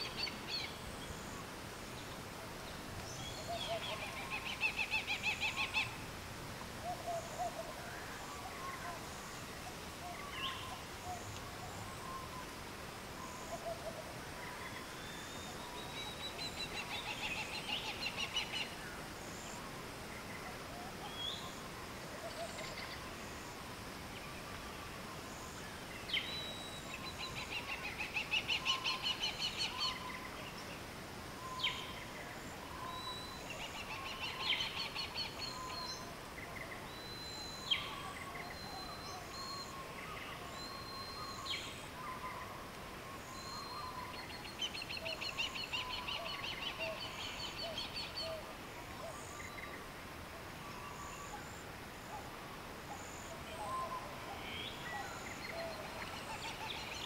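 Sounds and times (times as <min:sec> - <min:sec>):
faint natural background: 0:00.0 - 0:57.0
whistled bird notes: 0:32.7 - 0:36.1, 0:36.9 - 0:48.4.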